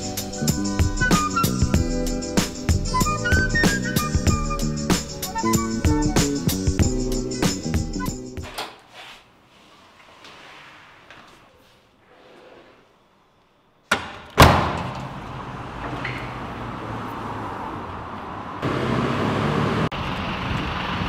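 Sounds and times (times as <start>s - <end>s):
city street traffic: 0.0s - 8.6s, 14.4s - 21.0s.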